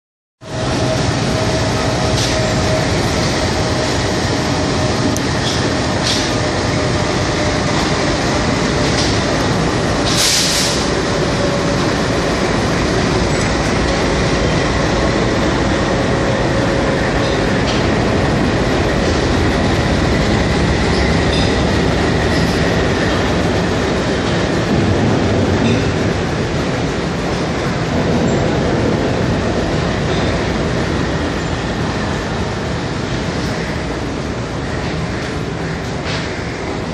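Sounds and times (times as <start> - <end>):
train wheels rumbling on rail: 0.4 - 36.9
short hiss: 10.1 - 10.8.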